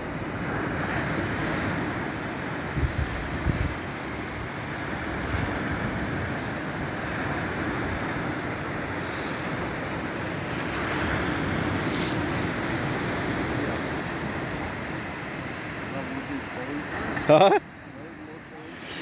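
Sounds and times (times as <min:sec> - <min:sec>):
wind on microphone: 0:00.0 - 0:17.4
waves washing on shore: 0:00.0 - 0:19.0.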